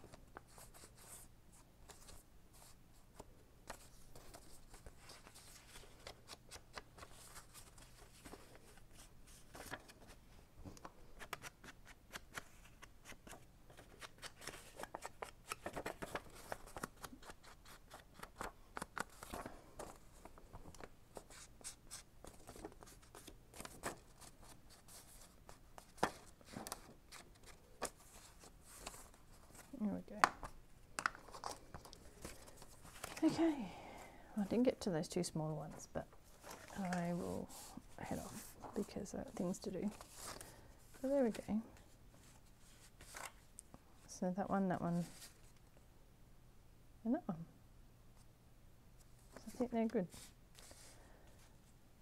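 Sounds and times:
paper rustling: 0.0s - 33.4s, 36.3s - 41.5s.

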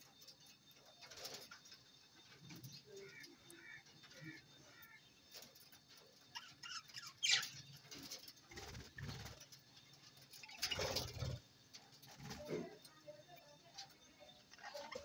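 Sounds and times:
budgerigars chirping: 6.4s - 7.7s.

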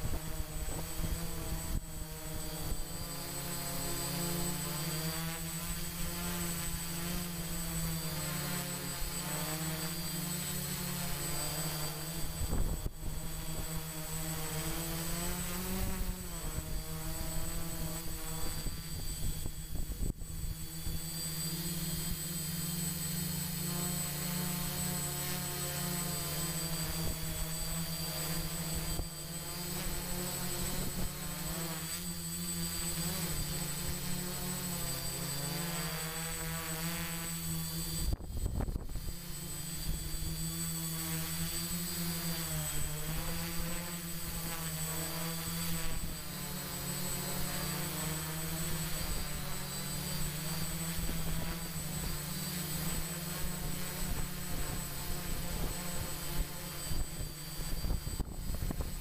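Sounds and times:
drone propellers buzzing: 0.0s - 59.0s.

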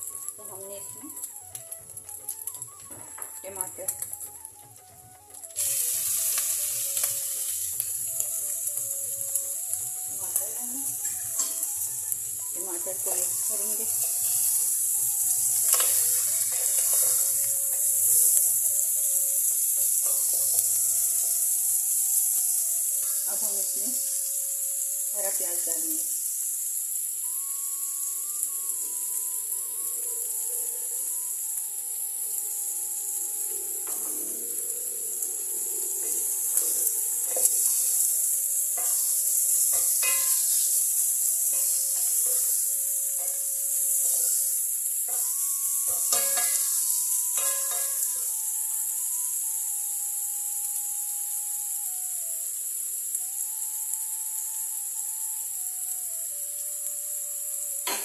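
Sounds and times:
food sizzling in a pot: 0.0s - 58.0s.

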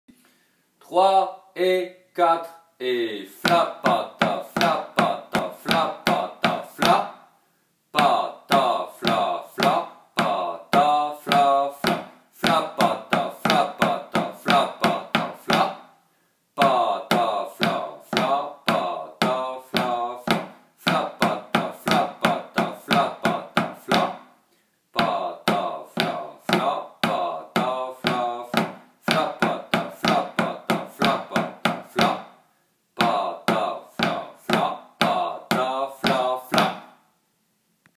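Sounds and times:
drumsticks playing drum rudiments: 3.4s - 7.1s, 8.0s - 15.8s, 16.6s - 24.3s, 25.0s - 32.3s, 33.0s - 36.9s.

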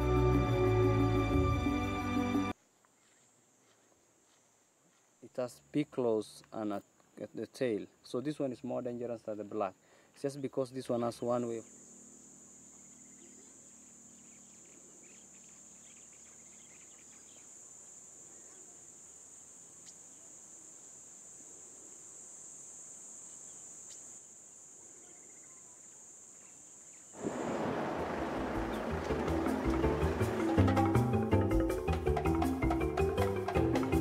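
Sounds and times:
insect chorus buzzing: 0.0s - 34.0s
loud music: 28.8s - 34.0s.

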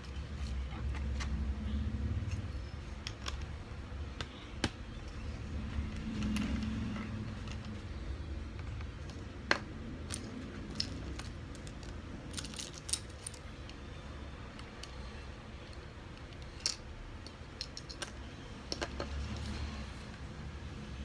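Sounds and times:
low steady background rumble: 0.0s - 21.0s
plastic bricks clicking: 15.7s - 19.1s.

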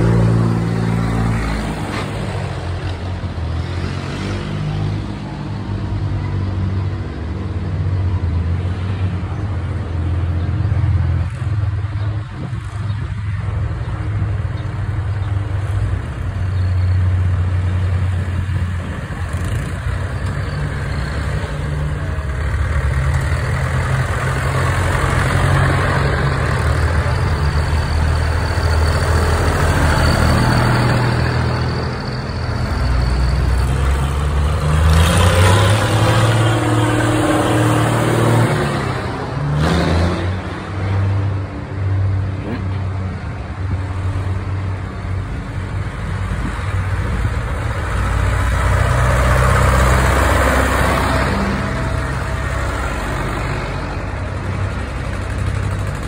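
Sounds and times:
tractor engine driving past: 17.5s - 41.4s, 45.4s - 56.0s.

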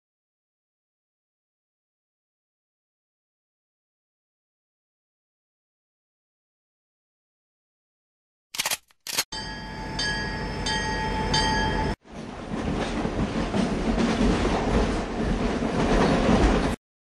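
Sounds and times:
train rumbling on rails: 9.4s - 16.8s.

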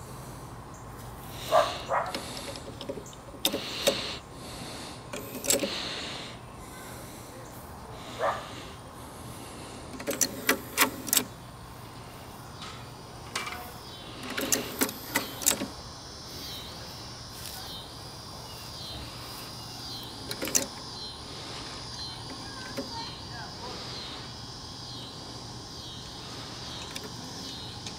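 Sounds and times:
cassette mechanism clicking: 2.0s - 4.2s, 5.1s - 5.8s, 9.9s - 11.4s, 14.2s - 15.8s, 20.1s - 20.9s, 26.7s - 27.9s.

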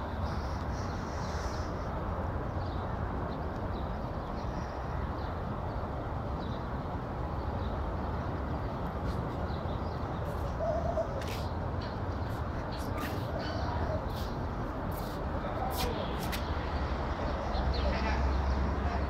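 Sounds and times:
outdoor background noise: 0.0s - 19.0s
low wavering bird call: 10.5s - 11.2s.

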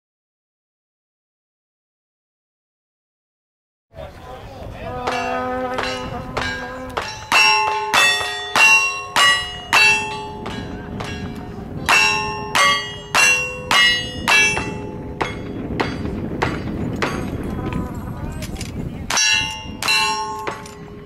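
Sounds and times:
steel target clanging: 5.1s - 17.3s, 19.1s - 21.0s.

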